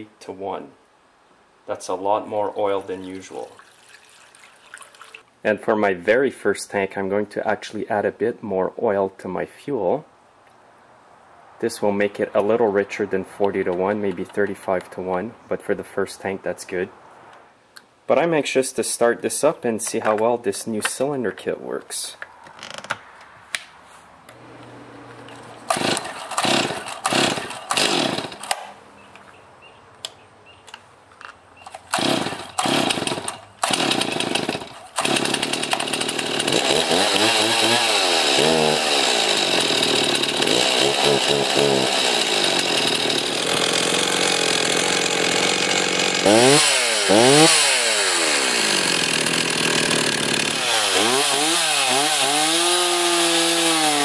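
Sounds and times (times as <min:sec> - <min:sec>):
chainsaw starting and revving: 0:24.3 - 0:28.8, 0:31.7 - 0:54.0.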